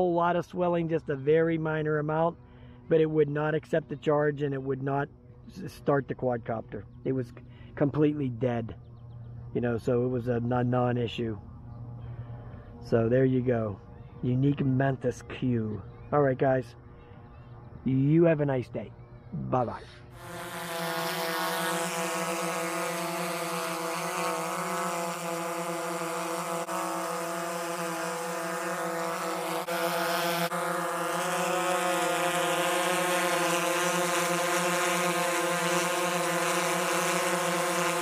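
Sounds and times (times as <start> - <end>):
drone propellers buzzing: 18.8 - 38.0.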